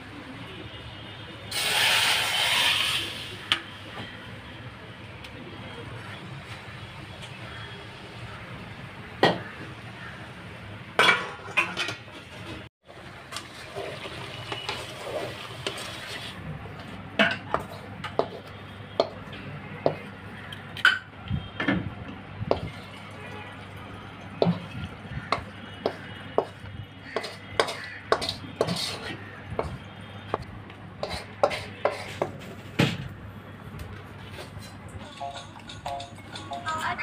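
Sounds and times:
metal spoon scraping a pot: 0:25.3 - 0:29.2, 0:31.0 - 0:32.3.

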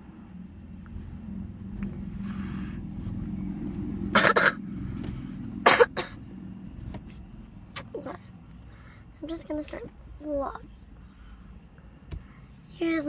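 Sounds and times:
steady low hum: 0:00.0 - 0:13.0
child coughing: 0:04.1 - 0:04.6, 0:05.6 - 0:06.2.

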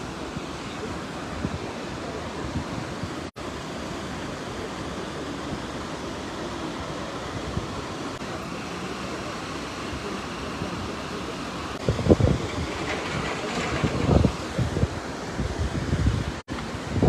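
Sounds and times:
floodwater rushing: 0:00.0 - 0:17.0
wind buffeting microphone: 0:11.8 - 0:17.0.

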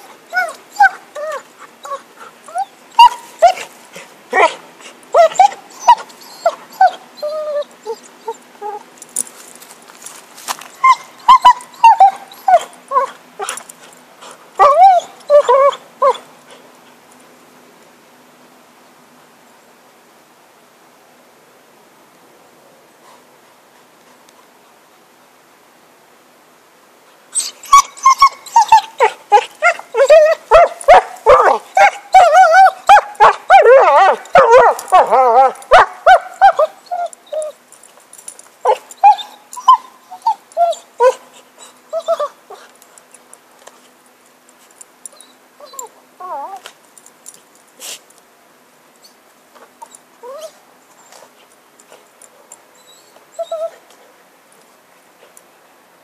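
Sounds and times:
dog whining and whimpering: 0:00.0 - 0:03.7, 0:04.3 - 0:08.9, 0:10.7 - 0:13.6, 0:14.6 - 0:16.2, 0:27.4 - 0:37.6, 0:38.6 - 0:42.7, 0:45.0 - 0:46.7, 0:49.8 - 0:51.2, 0:52.8 - 0:53.9.

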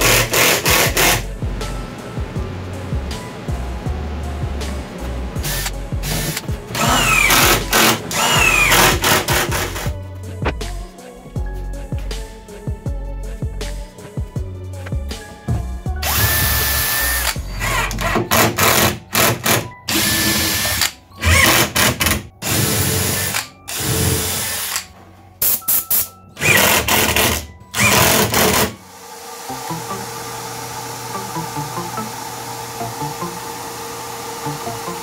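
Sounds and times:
cordless drill driving screws: 0:00.0 - 0:01.2, 0:05.4 - 0:09.9, 0:16.0 - 0:24.9, 0:26.4 - 0:28.8.

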